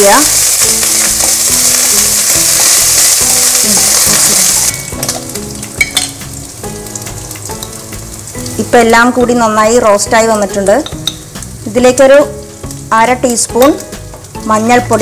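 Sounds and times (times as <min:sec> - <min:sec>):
food frying in hot oil: 0:00.0 - 0:15.0.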